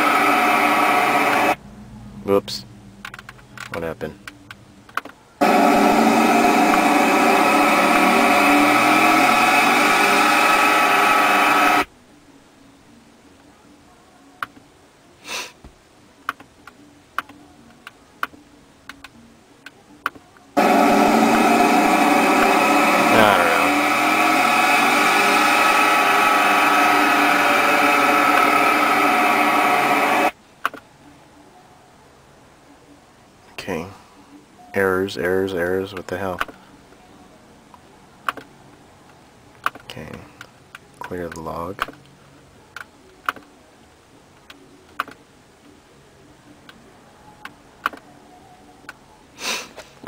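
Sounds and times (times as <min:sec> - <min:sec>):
engine sound through car speakers: 0:00.0 - 0:04.5, 0:05.4 - 0:11.9, 0:20.6 - 0:30.3.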